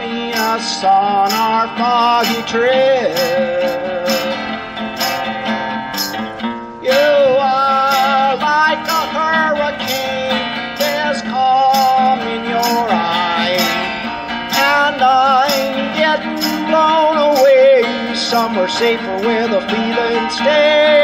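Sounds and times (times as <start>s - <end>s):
acoustic guitar strumming: 0.0s - 21.0s.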